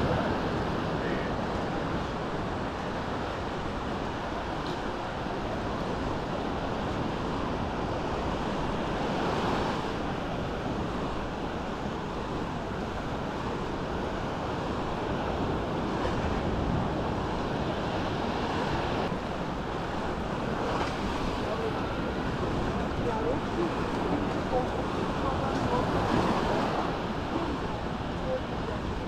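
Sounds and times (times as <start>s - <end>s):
waves washing onto sand: 0.0s - 29.0s
wind rumbling on microphone: 0.0s - 29.0s.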